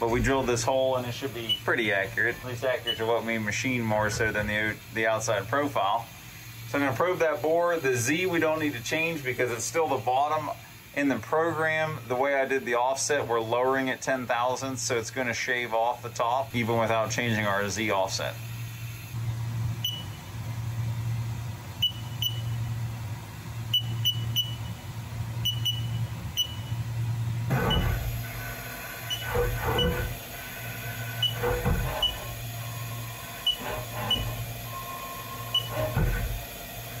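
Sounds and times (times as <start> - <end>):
machine low hum: 0.0 - 37.0
short high key beeps: 25.4 - 26.8
machine axes whirring: 27.5 - 37.0.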